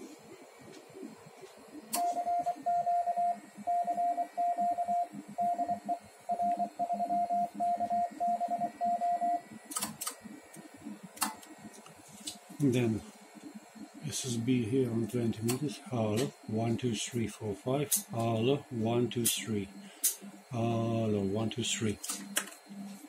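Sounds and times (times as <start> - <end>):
morse code tone: 2.0 - 9.4.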